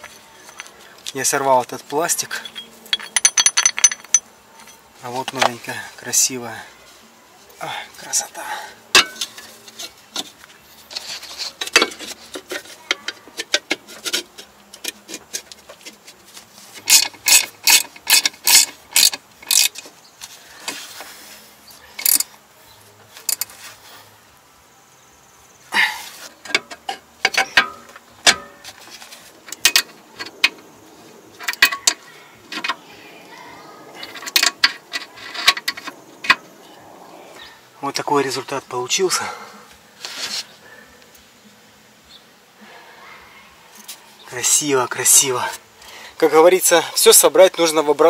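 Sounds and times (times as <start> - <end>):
ratchet wrench clicking: 16.8 - 19.8.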